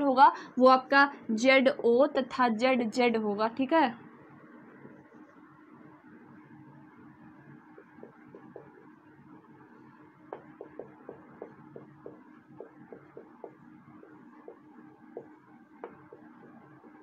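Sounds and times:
marker pen writing on whiteboard: 0:07.6 - 0:17.0.

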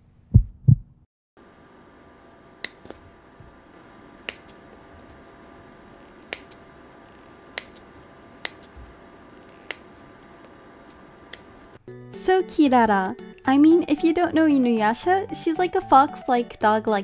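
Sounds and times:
faint steady hum: 0:01.4 - 0:11.8
scissors snipping foam: 0:04.2 - 0:04.6, 0:06.2 - 0:06.6, 0:07.5 - 0:08.8, 0:09.6 - 0:10.0.

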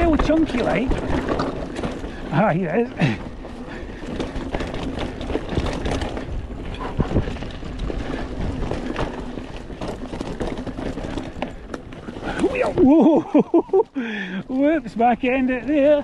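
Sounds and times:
bike knocking and rattling: 0:00.0 - 0:16.0
bike tyre noise on trail: 0:00.0 - 0:16.0.

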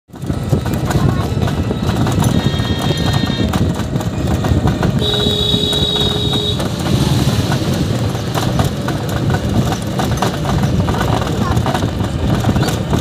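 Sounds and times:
auto-rickshaw rattling and rumbling: 0:00.1 - 0:13.0.

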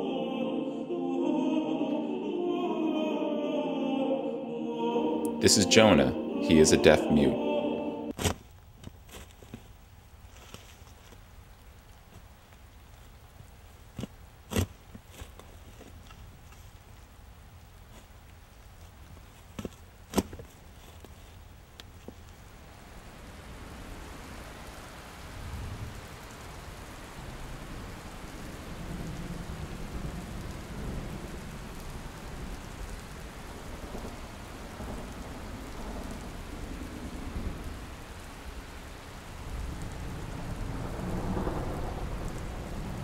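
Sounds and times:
rain hiss: 0:05.0 - 0:43.0
rolling thunder rumbles: 0:25.3 - 0:43.0.

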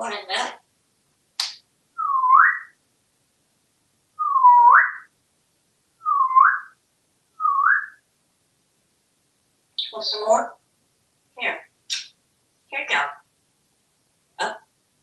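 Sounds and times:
parrot whistling: 0:02.0 - 0:02.7, 0:04.2 - 0:05.1, 0:06.0 - 0:06.7, 0:07.4 - 0:08.0.

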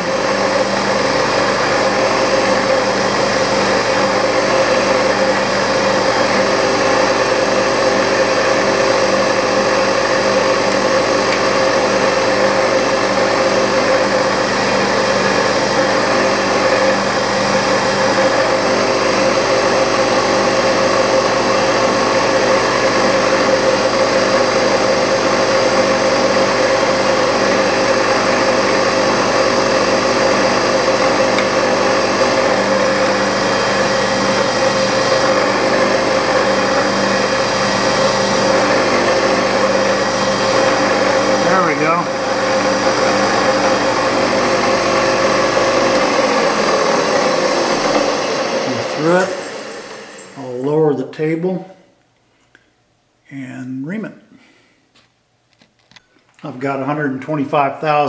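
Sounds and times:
milling machine hum: 0:00.0 - 0:50.8.

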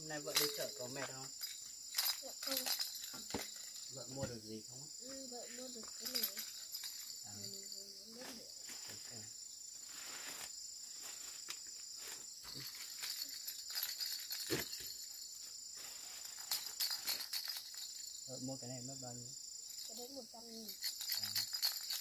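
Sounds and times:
high insect chorus: 0:00.0 - 0:22.0
clicks and rustles: 0:12.5 - 0:15.2, 0:20.7 - 0:22.0.

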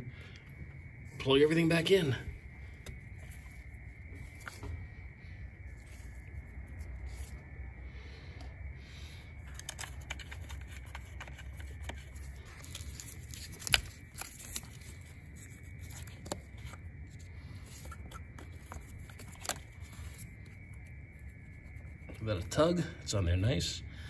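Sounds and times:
plastic parts rustling: 0:09.4 - 0:16.8.

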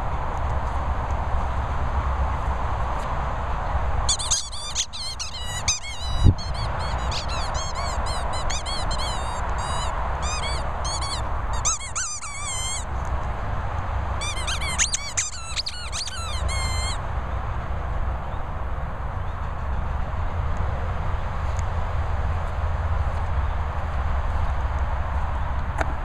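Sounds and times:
squeaky dog toy squeaking: 0:04.1 - 0:12.9, 0:14.2 - 0:17.0.

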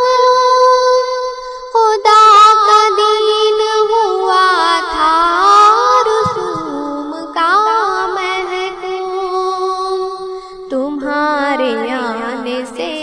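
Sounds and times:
person singing melismatically: 0:05.6 - 0:13.0.

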